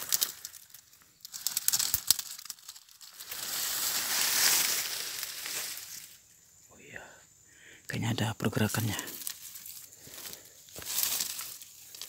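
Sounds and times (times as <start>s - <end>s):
dry palm fronds crackling: 0.0s - 6.3s, 8.6s - 12.0s.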